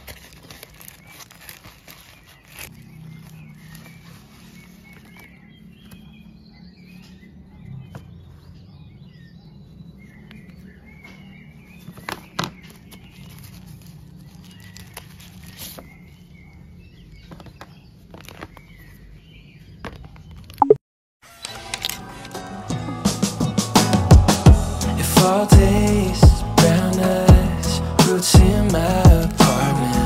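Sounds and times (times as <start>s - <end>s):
plastic packaging crinkling: 0.0s - 5.4s.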